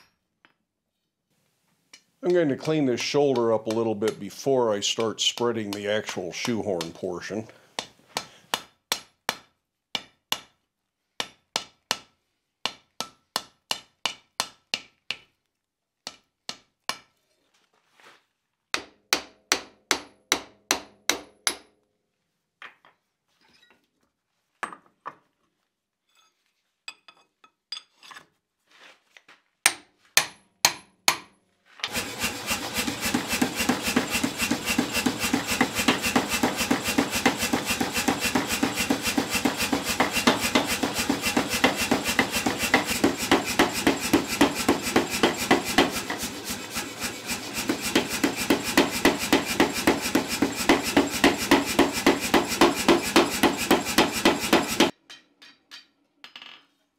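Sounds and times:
hammer striking steel on anvil: 2.2 - 7.1, 7.8 - 10.6, 11.2 - 15.3, 18.8 - 21.7, 29.7 - 56.0
power hammer pounding: 2.3 - 7.2, 31.9 - 54.9.

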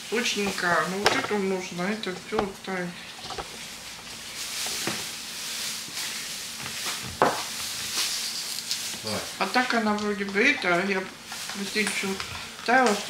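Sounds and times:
steady hiss: 2.5 - 9.6.

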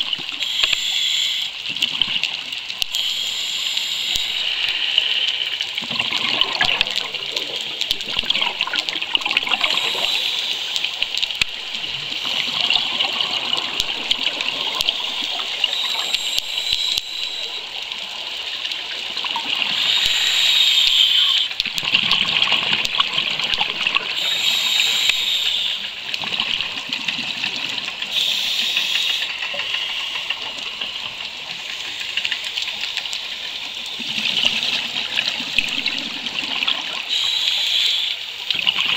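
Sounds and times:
scuba regulator breathing underwater: 0.3 - 1.7, 2.9 - 7.5, 8.2 - 11.0, 11.6 - 17.8, 19.4 - 21.6, 24.0 - 26.1, 28.1 - 30.8, 36.8 - 38.4
air bubbles gushing: 5.7 - 18.1, 20.8 - 24.3, 25.1 - 28.2, 33.4 - 37.1.

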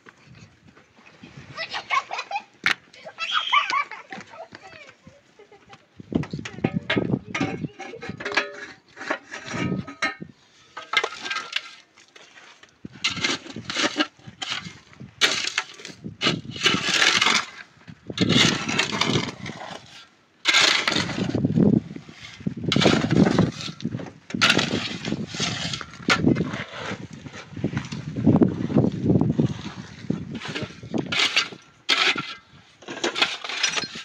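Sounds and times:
shovel scraping dirt and gravel: 6.9 - 28.2, 29.6 - 34.0.

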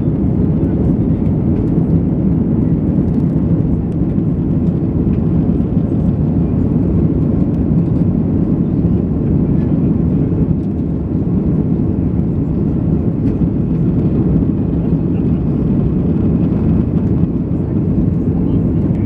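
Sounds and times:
airliner cabin engine rumble: 0.0 - 19.0.

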